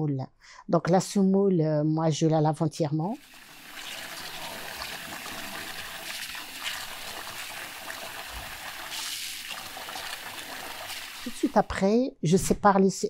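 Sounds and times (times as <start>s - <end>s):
tap water running into metal bowl: 3.2s - 11.7s.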